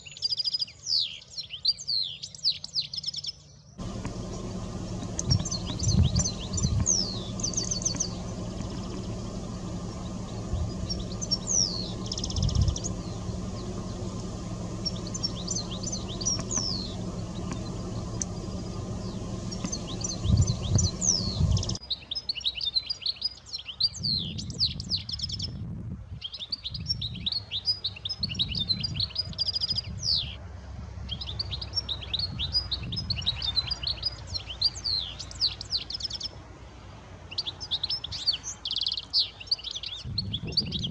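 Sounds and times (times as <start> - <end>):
finches twittering: 3.8 - 21.8
low thumps: 3.8 - 21.8
steady low rumble: 3.8 - 21.8.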